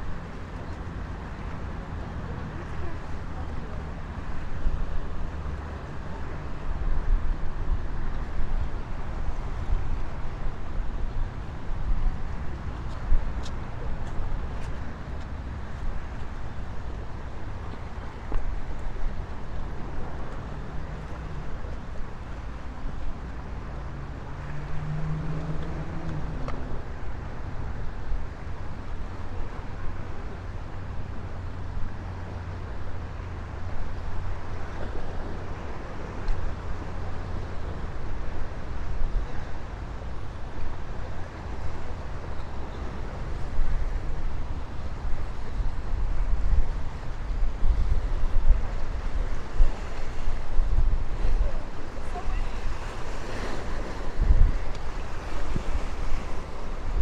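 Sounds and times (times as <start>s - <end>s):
traffic noise: 0.0s - 57.0s
wind rumbling on microphone: 0.0s - 57.0s.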